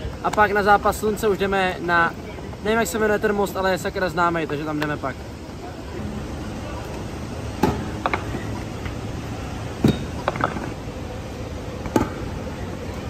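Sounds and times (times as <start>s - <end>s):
scooter clattering on stone: 9.8s - 10.8s.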